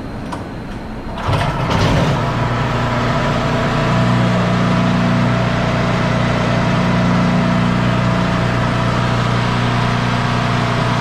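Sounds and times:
generator engine running: 0:01.0 - 0:11.0.

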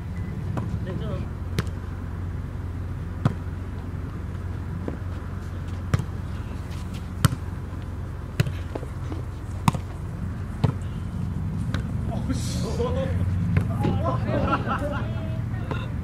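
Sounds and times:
steady low hum: 0:00.0 - 0:16.0
volleyball hits: 0:05.9 - 0:06.2, 0:07.2 - 0:07.5, 0:09.6 - 0:10.0, 0:13.5 - 0:14.1.

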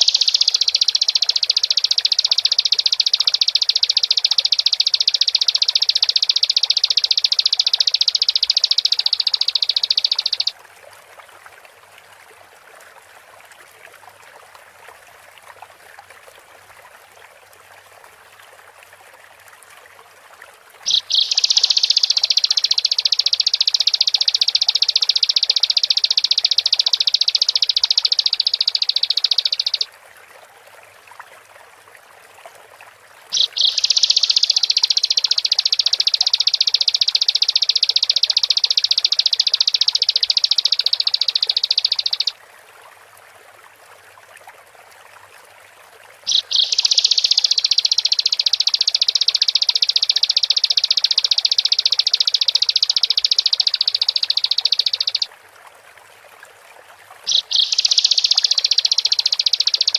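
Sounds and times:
bird high-pitched trilling: 0:00.0 - 0:10.5, 0:20.9 - 0:29.9, 0:33.3 - 0:42.4, 0:46.3 - 0:55.3, 0:57.2 - 0:59.9
faint background hiss: 0:00.0 - 0:59.9.

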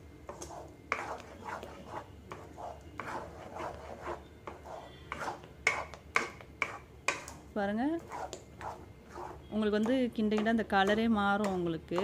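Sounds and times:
wooden spatula scraping a pan: 0:00.3 - 0:07.3, 0:08.0 - 0:10.5.

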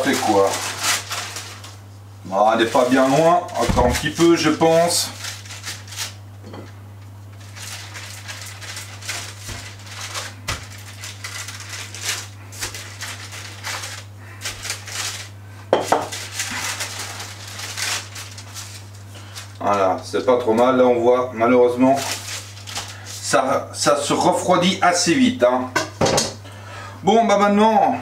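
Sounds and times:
baking paper crackling: 0:00.0 - 0:06.2, 0:07.3 - 0:20.3, 0:21.7 - 0:24.1.

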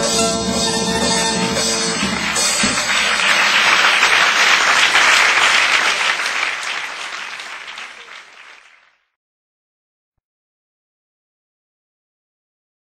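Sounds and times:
audience applauding: 0:01.5 - 0:09.0.

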